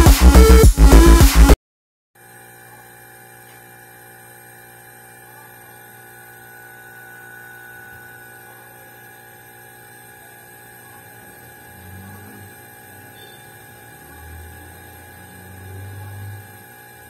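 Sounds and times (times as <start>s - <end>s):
loud electronic music: 0.0s - 1.6s
compressor electric hum: 2.2s - 17.0s.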